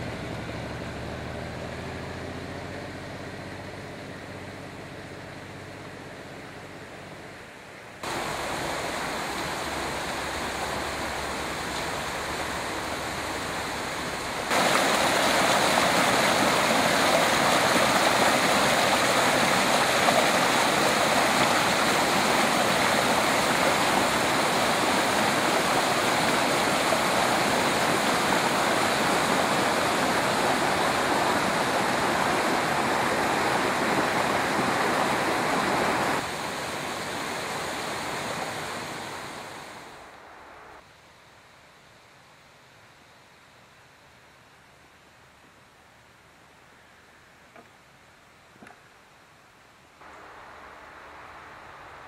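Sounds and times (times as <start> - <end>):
water splashing onto rocks: 14.0 - 36.9.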